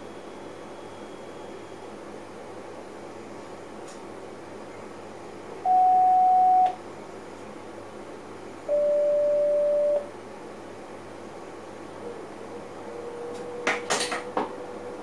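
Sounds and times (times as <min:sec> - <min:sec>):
electronic signal tones: 0:05.7 - 0:06.8, 0:08.7 - 0:10.1.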